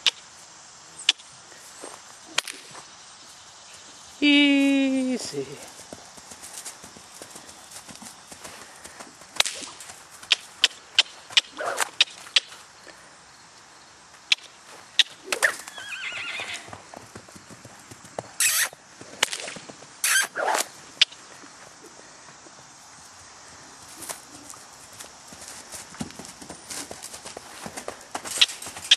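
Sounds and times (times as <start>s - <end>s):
hooves knocking on hard ground: 24.9s - 28.9s.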